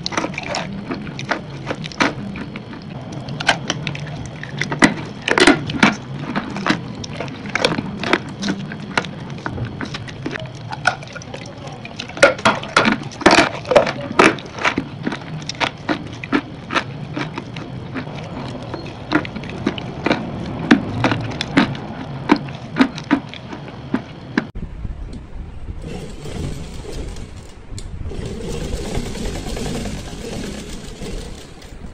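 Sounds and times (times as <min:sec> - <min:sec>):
crunchy chewing: 0:00.0 - 0:10.8, 0:12.8 - 0:24.6.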